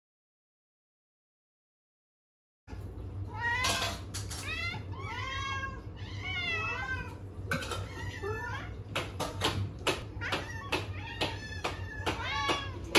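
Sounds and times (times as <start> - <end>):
cats meowing: 3.2 - 12.9.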